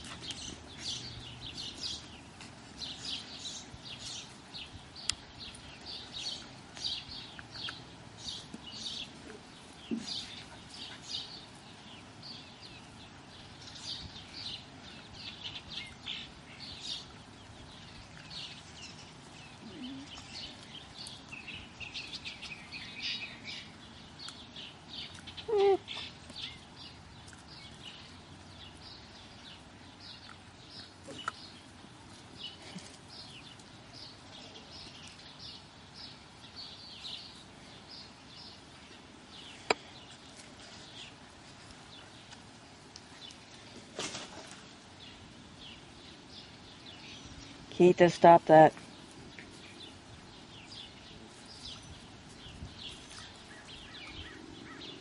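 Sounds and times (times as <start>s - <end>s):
puppies play-fighting: 0.0s - 4.4s, 5.2s - 15.5s, 24.5s - 35.7s
small birds chirping: 0.0s - 55.0s.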